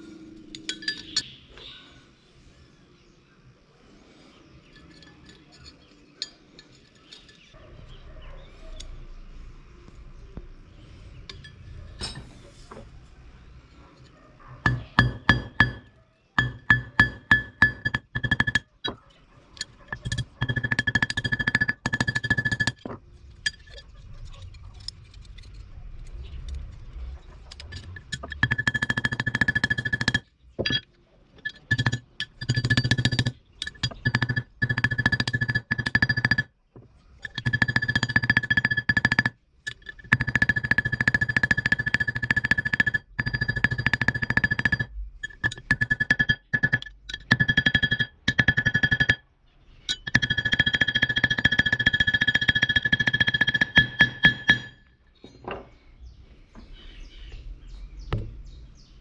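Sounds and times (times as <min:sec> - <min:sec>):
steel plate ringing: 0:00.0 - 0:01.4, 0:14.6 - 0:19.0, 0:27.7 - 0:36.5, 0:37.2 - 0:49.2, 0:49.9 - 0:54.9.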